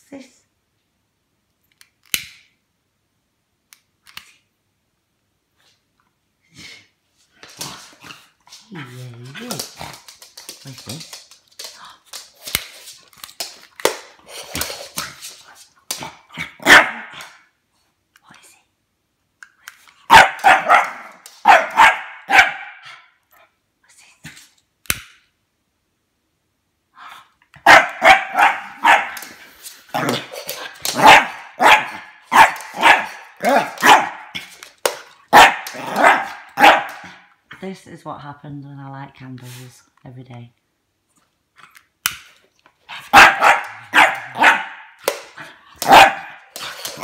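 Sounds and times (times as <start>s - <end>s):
puppy barking: 16.6s - 17.2s, 20.1s - 23.1s, 27.6s - 29.2s, 29.9s - 34.4s, 35.3s - 37.2s, 43.0s - 45.0s, 45.8s - 47.0s.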